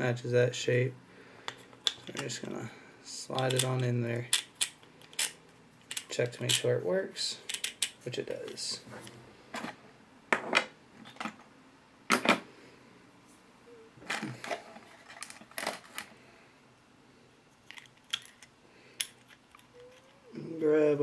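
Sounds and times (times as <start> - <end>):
plastic parts clicking: 3.4 - 6.6, 7.5 - 8.6.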